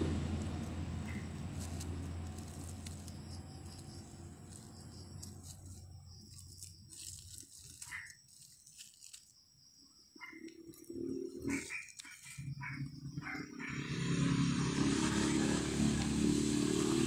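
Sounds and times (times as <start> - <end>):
passing vehicle rumble: 0.0 - 6.5, 12.3 - 17.0.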